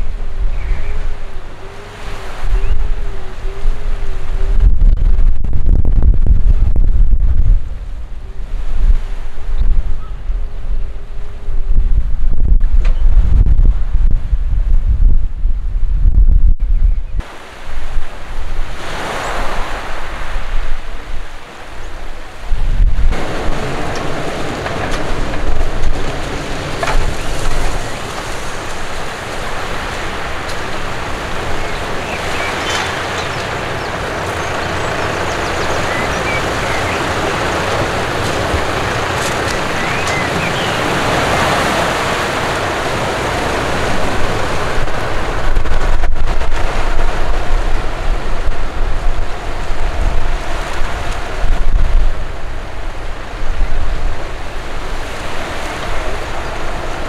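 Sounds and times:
waves breaking on shore: 0:00.0 - 0:04.8, 0:17.2 - 0:57.0
wind buffeting microphone: 0:00.0 - 0:57.0.

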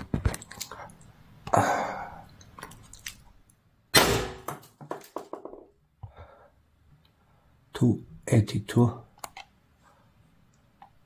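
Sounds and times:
sharp launcher shots: 0:04.0 - 0:04.5.

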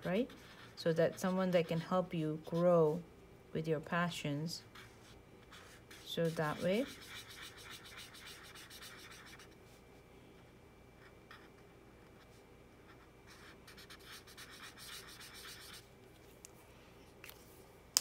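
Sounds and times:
marker scrubbing on paper: 0:00.0 - 0:03.0, 0:04.7 - 0:09.6, 0:12.9 - 0:15.9.

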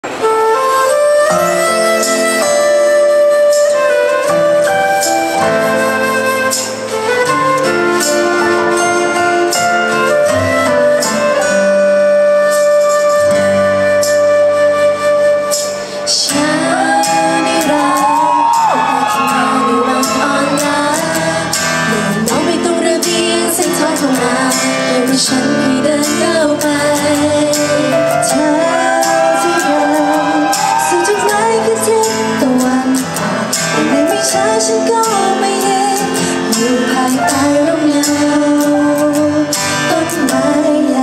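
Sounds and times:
pop backing music: 0:00.0 - 0:41.0
woman singing: 0:16.0 - 0:41.0.

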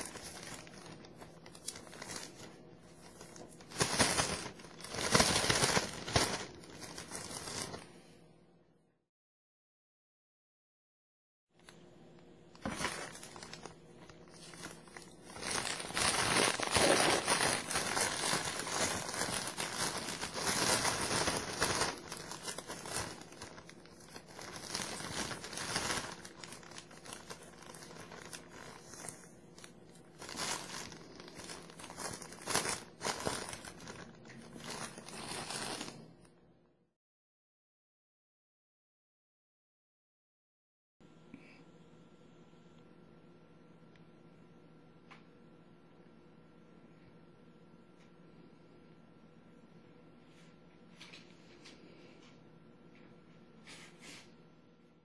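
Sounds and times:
plastic bags crinkling: 0:00.0 - 0:07.9, 0:12.6 - 0:36.1.

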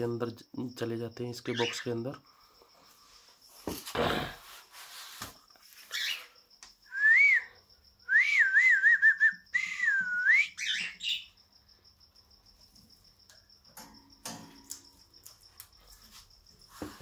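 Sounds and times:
person whistling warbling call: 0:08.1 - 0:10.6.

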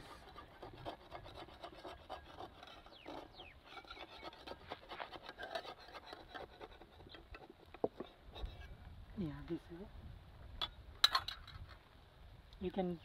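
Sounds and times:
metal spatula scraping a pan: 0:00.0 - 0:08.8.

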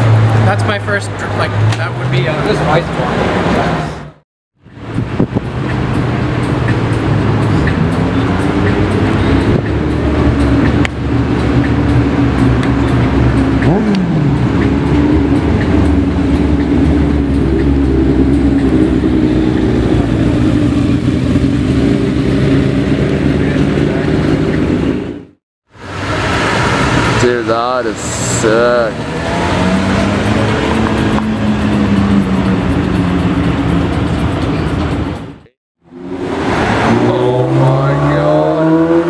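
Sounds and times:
car engine idling: 0:04.7 - 0:35.5.

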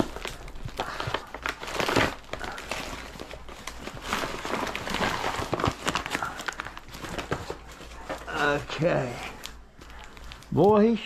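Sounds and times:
paper tearing and crumpling: 0:00.0 - 0:11.0.

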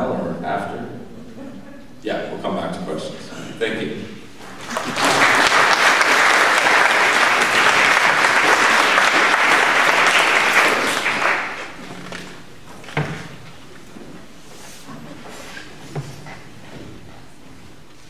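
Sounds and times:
audience applauding: 0:04.4 - 0:12.2.

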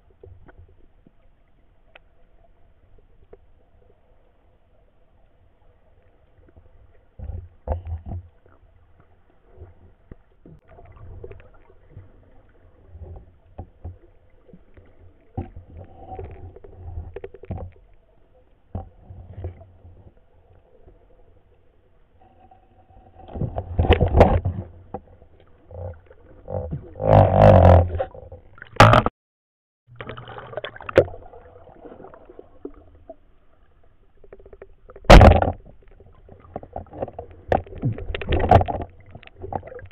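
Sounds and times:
muffled underwater knocks and clicks: 0:06.5 - 0:08.7, 0:09.5 - 0:20.2, 0:23.1 - 0:29.1, 0:34.2 - 0:39.9.

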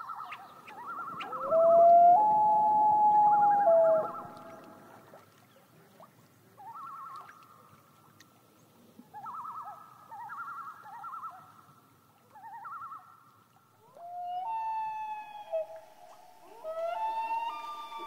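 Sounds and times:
loons calling: 0:00.8 - 0:05.0, 0:14.0 - 0:18.0.

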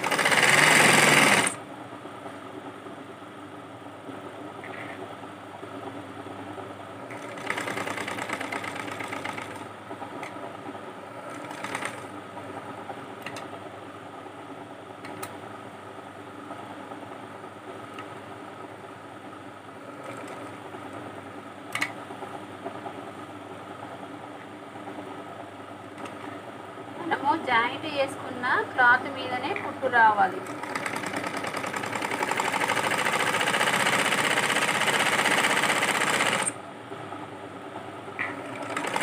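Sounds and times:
sewing machine running: 0:00.0 - 0:01.6, 0:07.1 - 0:10.3, 0:11.1 - 0:12.1, 0:19.8 - 0:20.6, 0:29.9 - 0:36.6, 0:38.2 - 0:39.0.

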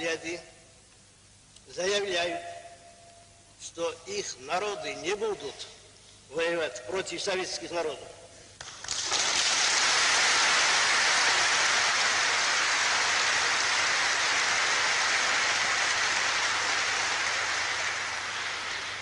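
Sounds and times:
audience applauding: 0:08.6 - 0:19.0.

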